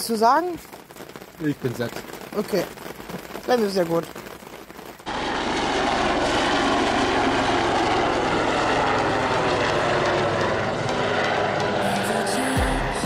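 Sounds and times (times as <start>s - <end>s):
helicopter rotor and engine: 5.1s - 13.0s.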